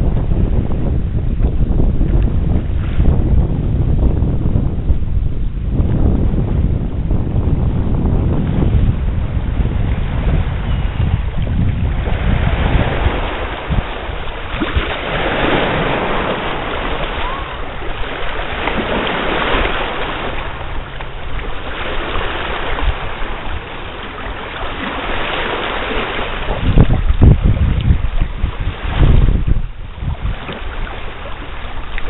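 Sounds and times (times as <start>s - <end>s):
wind buffeting microphone: 0.0s - 32.0s
waves lapping on rocks: 9.6s - 32.0s.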